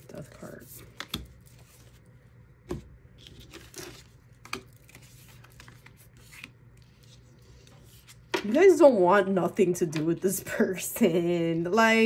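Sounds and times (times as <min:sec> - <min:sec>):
cards rustling: 0:00.2 - 0:02.2, 0:03.1 - 0:08.5.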